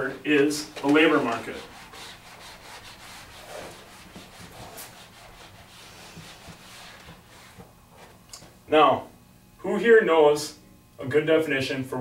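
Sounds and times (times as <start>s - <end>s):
marker and eraser rubbing whiteboard: 0.8s - 8.2s.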